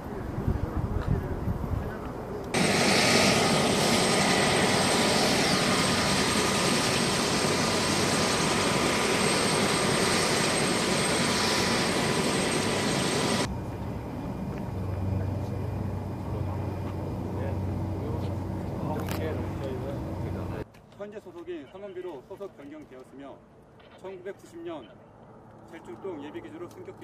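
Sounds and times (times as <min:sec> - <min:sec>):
helicopter turbine engine whine: 0:00.0 - 0:20.6, 0:24.4 - 0:27.0
low hum: 0:12.0 - 0:20.6.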